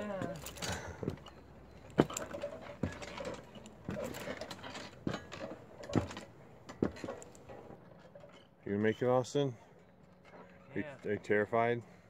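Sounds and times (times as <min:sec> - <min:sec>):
footsteps on wooden planks: 0:00.0 - 0:07.7.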